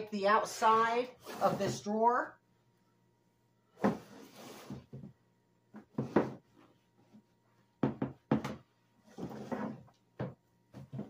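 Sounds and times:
hollow plastic knocks: 7.8s - 8.6s.

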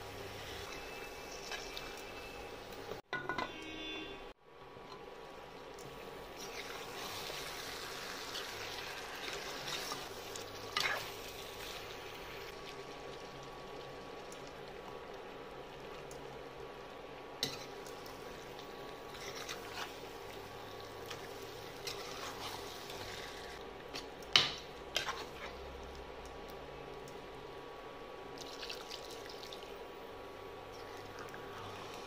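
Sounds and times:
ladle stirring thick curry: 24.9s - 25.7s.

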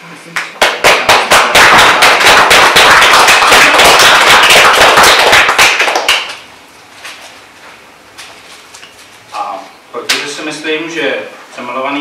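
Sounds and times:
audience applauding: 0.6s - 6.4s.

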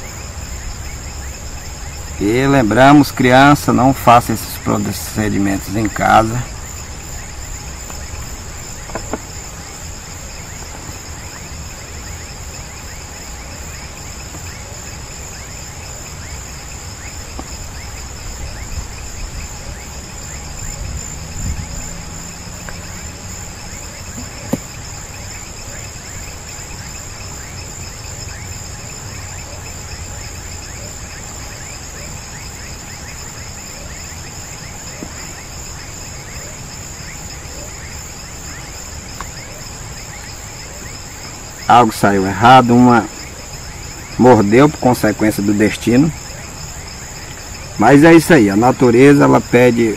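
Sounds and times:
insects shrilling: 0.0s - 49.9s.

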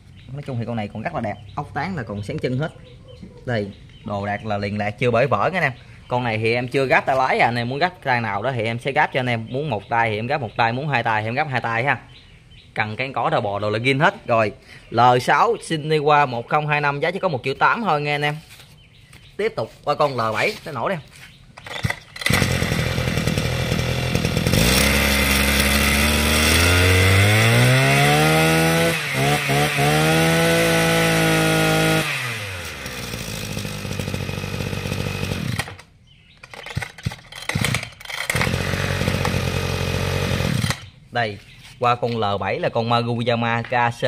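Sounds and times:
brush-cutter engine running: 21.6s - 35.9s, 36.5s - 41.0s
recoil starter pull: 21.6s - 40.9s.

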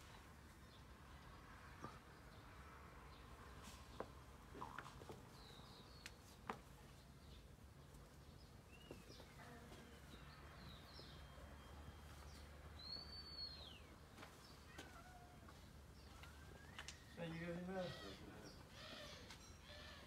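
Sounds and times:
faint bird chirps: 8.7s - 20.0s.

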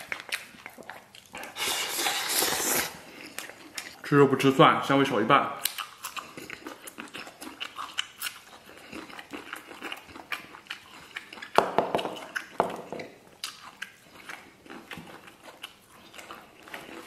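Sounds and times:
chewing with wet smacking: 0.0s - 1.7s, 3.0s - 4.2s, 5.6s - 17.0s.

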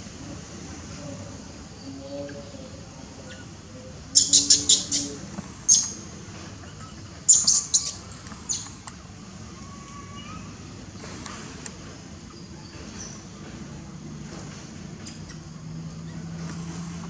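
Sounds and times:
young monkey squealing: 4.2s - 6.0s, 6.7s - 8.6s.

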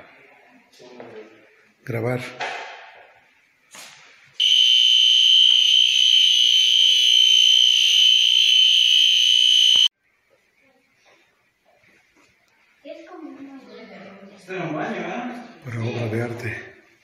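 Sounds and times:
electronic alarm tone: 4.4s - 9.9s.

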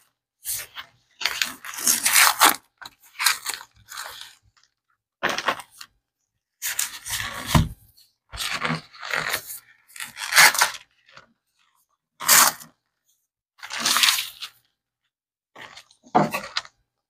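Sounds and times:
cardboard and paper tearing: 1.2s - 4.4s, 8.4s - 10.9s, 12.2s - 12.7s, 13.6s - 14.6s.

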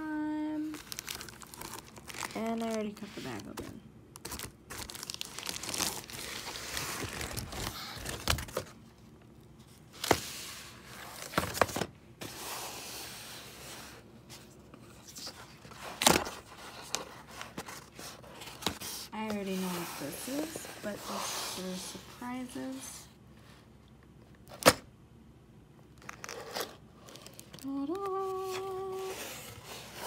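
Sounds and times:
plastic bag crinkling: 0.8s - 3.4s, 4.2s - 8.4s.

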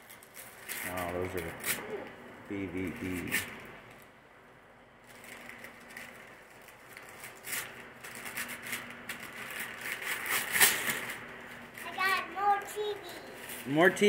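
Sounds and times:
wrapping paper crinkling and tearing: 0.0s - 2.1s, 5.0s - 13.8s.

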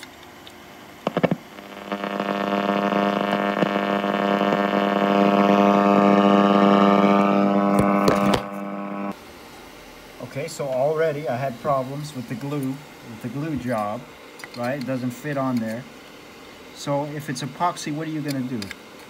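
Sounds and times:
sharp clicks: 0.0s - 4.8s
radio buzzing tone: 0.8s - 9.2s.

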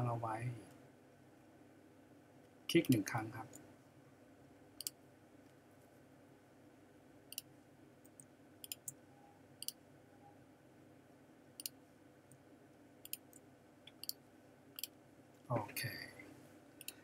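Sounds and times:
faint room hum: 0.0s - 17.0s
computer mouse clicks: 7.3s - 9.0s, 9.6s - 9.8s, 11.6s - 11.8s, 13.0s - 14.2s, 16.8s - 17.0s.

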